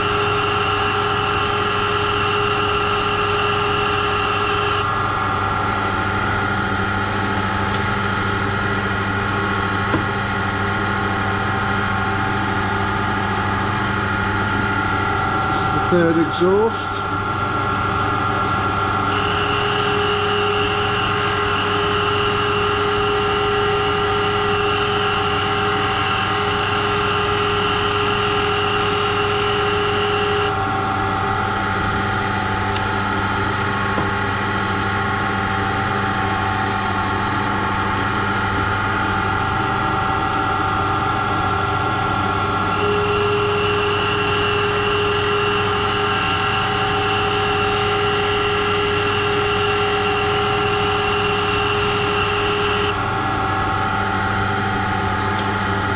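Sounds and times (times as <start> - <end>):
valve grinding machine running: 0.0 - 55.9.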